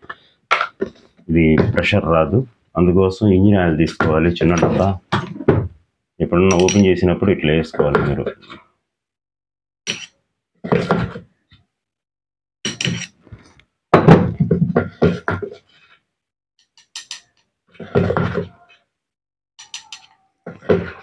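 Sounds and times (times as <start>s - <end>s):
metal parts knocking on workbench: 12.7s - 13.2s.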